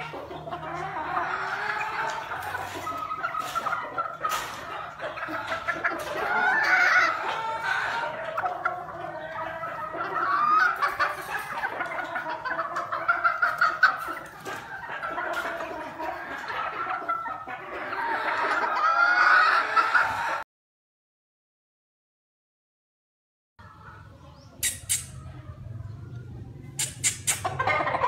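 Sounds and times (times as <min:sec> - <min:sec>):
chickens clucking and calling: 0:00.0 - 0:20.4, 0:23.6 - 0:28.0
sharp clicks: 0:24.6 - 0:25.2, 0:26.8 - 0:27.5.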